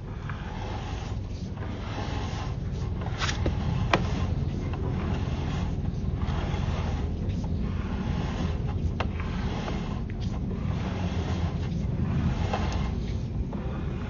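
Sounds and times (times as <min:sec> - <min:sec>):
low rumble of inspection camera: 0:00.0 - 0:14.0.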